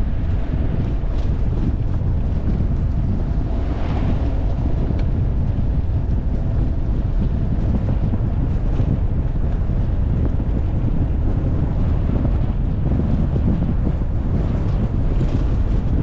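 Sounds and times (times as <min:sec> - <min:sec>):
vehicle driving on dirt road: 0:00.0 - 0:16.0
wind buffeting microphone: 0:00.0 - 0:16.0
oncoming vehicle passing: 0:02.5 - 0:07.1.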